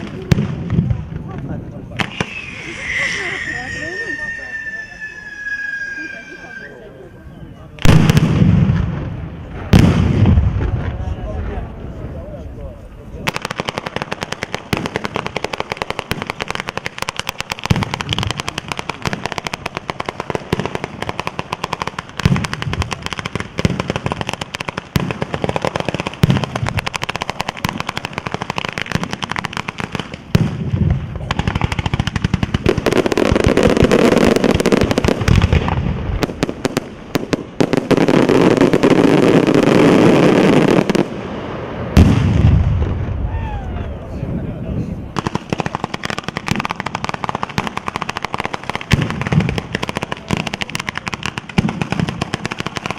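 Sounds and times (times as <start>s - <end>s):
firecrackers crackling: 0.0s - 44.0s, 44.6s - 52.9s
heavy booms: 7.8s - 12.4s, 41.1s - 45.5s.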